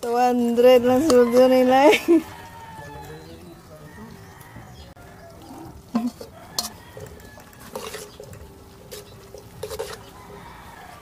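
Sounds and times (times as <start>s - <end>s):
metal spoon clinking on colander: 0.8s - 1.7s.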